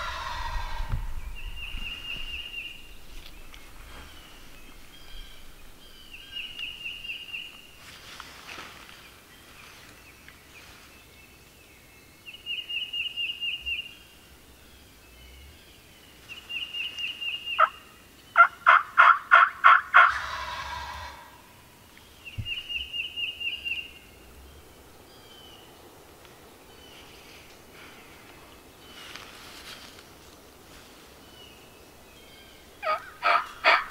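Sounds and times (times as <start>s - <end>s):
turkey calling: 16.6s - 17.8s, 18.4s - 21.5s, 32.8s - 33.9s
turkey rattling call: 18.4s - 21.4s, 32.8s - 33.9s.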